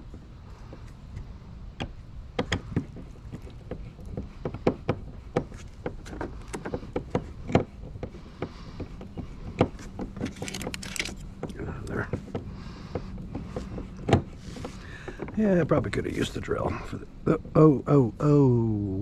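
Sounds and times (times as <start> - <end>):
screws and hardware clicking: 8.9 - 12.0.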